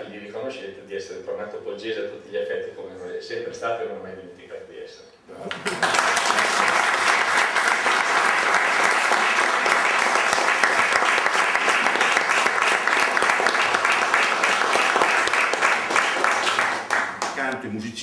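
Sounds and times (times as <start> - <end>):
audience applauding: 5.5 - 17.6.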